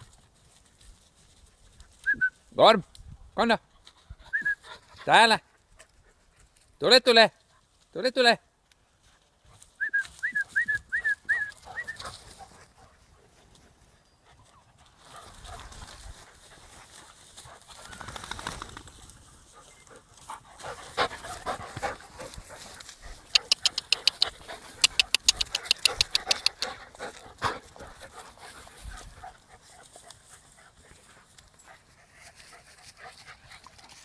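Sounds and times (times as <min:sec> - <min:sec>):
scuffling and rustling in grass: 0:11.5 - 0:23.6
sharp clicks: 0:23.3 - 0:26.7
puppies squeaking: 0:23.4 - 0:26.6.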